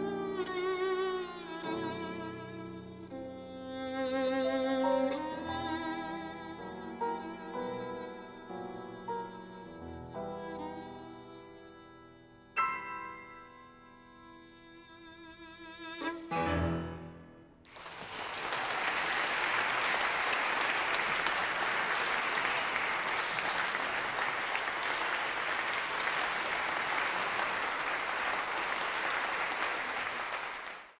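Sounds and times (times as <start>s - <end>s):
violin and piano: 0.0s - 17.5s
audience applauding: 17.7s - 31.0s.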